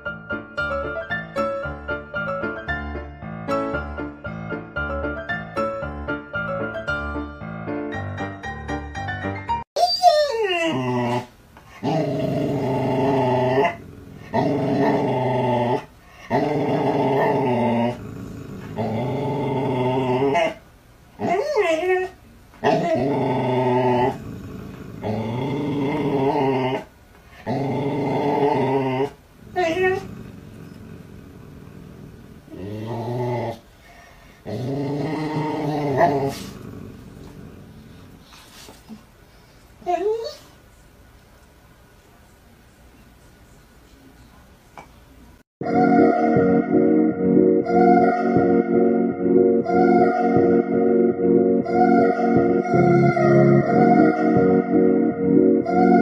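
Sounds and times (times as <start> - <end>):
dog whining: 9.8 - 12.0, 21.2 - 24.2, 28.0 - 30.9, 39.8 - 40.6
dog growling: 10.6 - 20.6, 22.6 - 33.7, 34.4 - 38.6.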